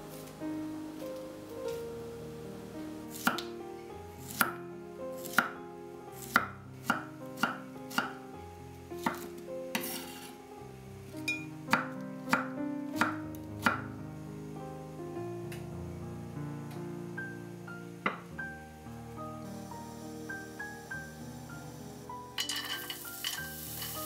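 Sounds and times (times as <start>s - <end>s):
knife chopping on wooden board: 6.2s - 8.2s, 9.0s - 10.2s.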